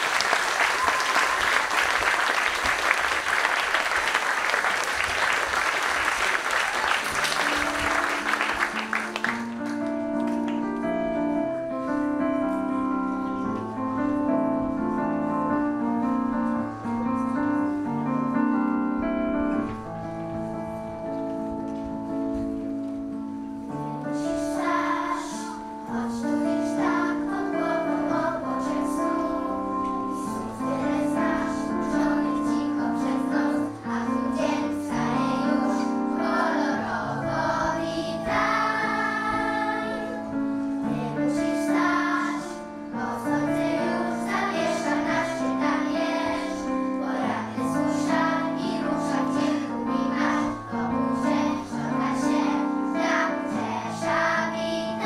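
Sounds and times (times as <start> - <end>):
children's choir singing: 0.0 - 10.3, 23.8 - 55.0.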